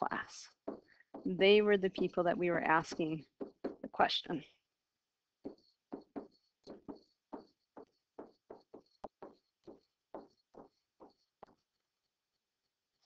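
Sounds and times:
stylus scratching strokes: 5.4 - 13.0.

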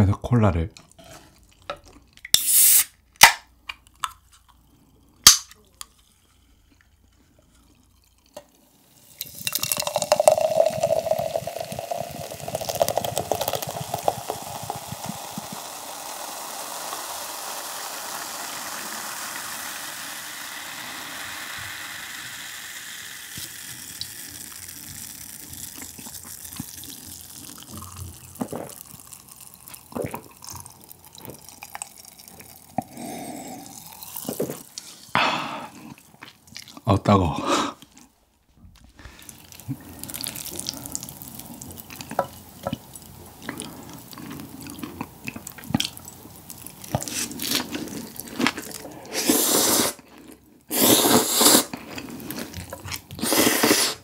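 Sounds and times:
soda fizzing: 0.9 - 36.8, 38.8 - 54.0
short hiss: 2.3 - 3.0, 49.1 - 50.0, 50.7 - 51.7, 53.2 - 54.0
person drinking: 3.7 - 38.2, 38.8 - 54.0
soda pouring into a glass: 3.9 - 36.6, 39.1 - 54.0.

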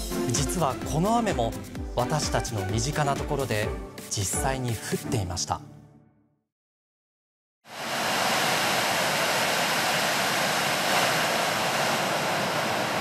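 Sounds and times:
river water rushing: 7.7 - 13.0.

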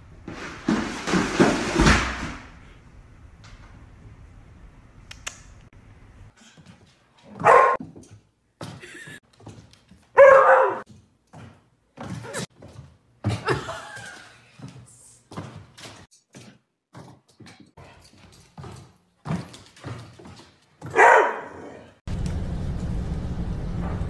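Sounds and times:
dog barking: 7.3 - 7.8, 10.2 - 10.8, 20.8 - 21.9.

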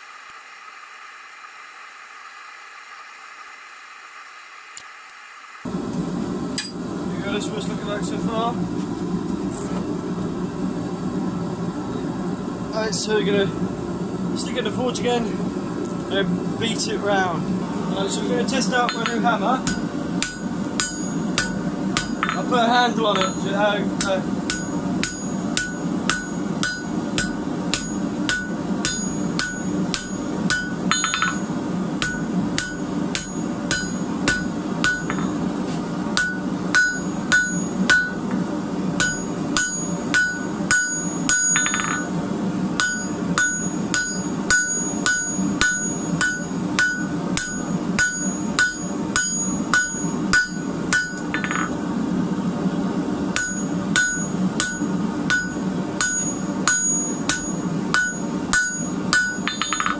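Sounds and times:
steady low hum: 5.4 - 59.9
hammer striking steel on anvil: 6.6 - 6.8, 18.8 - 35.4, 36.1 - 38.4, 39.0 - 42.2, 42.8 - 51.8, 53.3 - 59.9.

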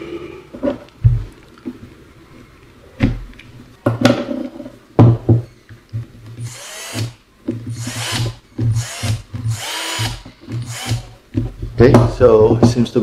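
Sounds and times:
electric motor whirring: 6.4 - 11.2.

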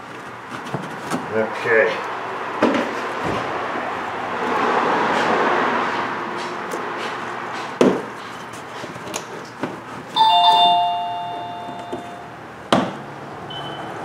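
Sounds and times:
two-note electronic chime: 10.2 - 12.4.

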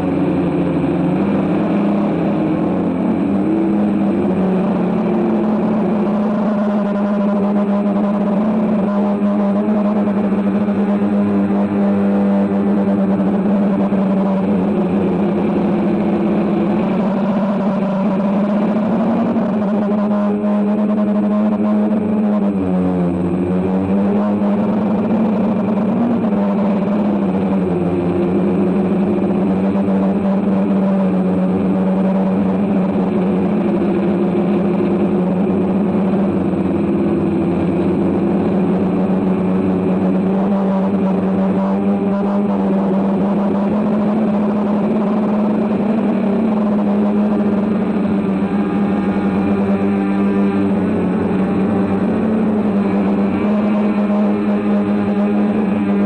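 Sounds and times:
drone motors humming: 0.0 - 56.0.

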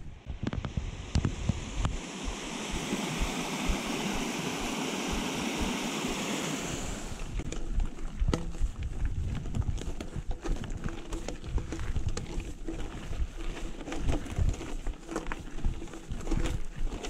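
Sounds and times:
wind rumble on microphone: 0.0 - 17.0
tyres crunching over gravel: 6.9 - 17.0
bike rattling: 7.1 - 17.0.

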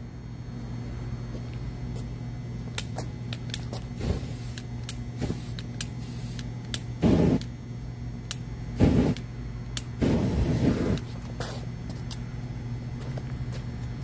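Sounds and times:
steady low hum: 0.0 - 14.0
flame flaring up: 7.0 - 7.5, 8.8 - 9.2, 9.9 - 11.5.

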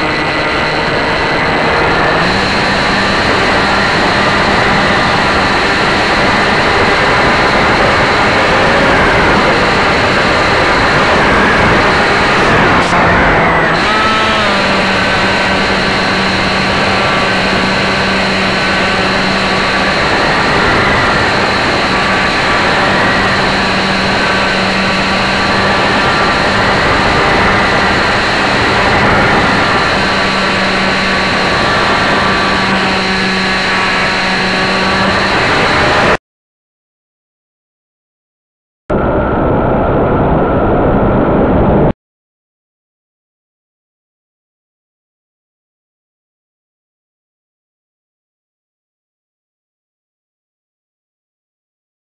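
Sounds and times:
electric motor and propeller drone: 0.0 - 36.2.

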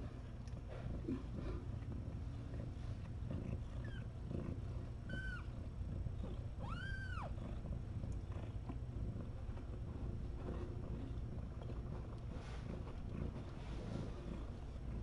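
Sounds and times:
cat purring: 0.0 - 15.0
cat mewing: 6.6 - 7.4.

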